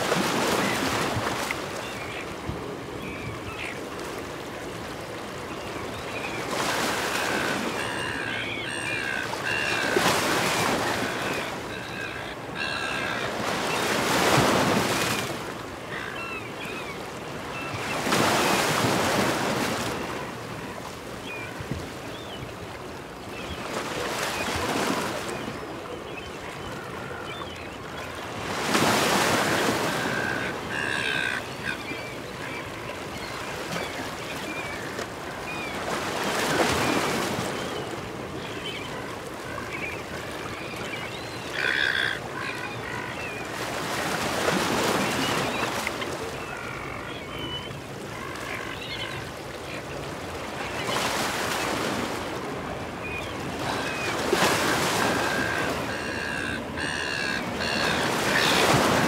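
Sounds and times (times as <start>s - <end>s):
seagulls calling: 5.5s - 15.0s, 23.4s - 59.0s.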